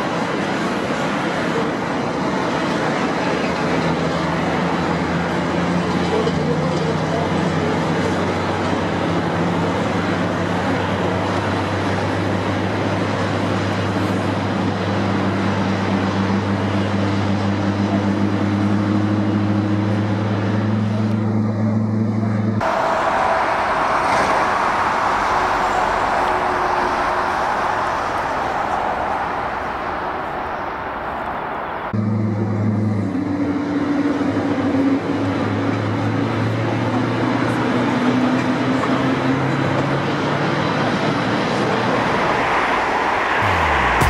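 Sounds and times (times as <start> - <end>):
jet engine roar: 22.6 - 32.0, 40.9 - 44.0.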